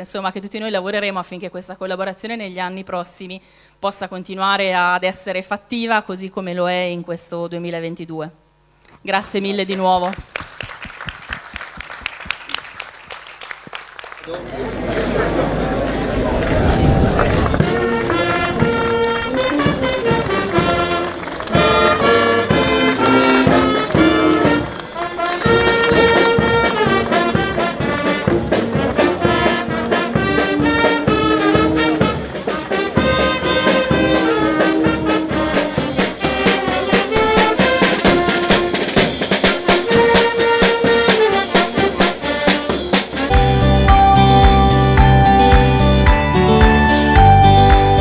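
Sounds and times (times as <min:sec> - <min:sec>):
brass band playing upbeat tune: 0:17.3 - 0:48.0
music with heavy bass: 0:43.4 - 0:48.0.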